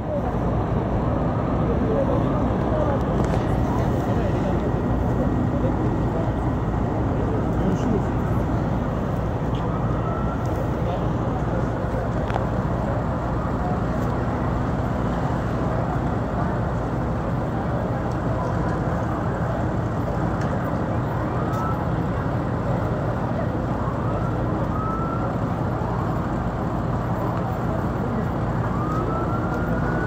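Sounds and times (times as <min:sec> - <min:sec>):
fire engines rumbling: 0:00.0 - 0:30.0
faint siren wailing: 0:04.7 - 0:17.0, 0:20.8 - 0:30.0.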